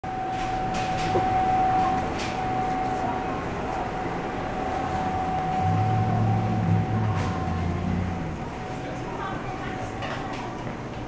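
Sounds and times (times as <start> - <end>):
steady mechanical hum: 0.0 - 11.0
high-pitched whine: 0.1 - 8.7
low hum: 0.1 - 8.8.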